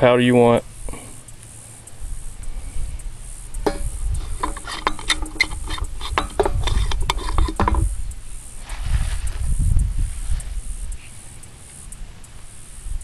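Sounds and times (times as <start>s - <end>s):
metal tin clinking and scraping: 3.7s - 8.0s
low rumble: 7.9s - 11.0s.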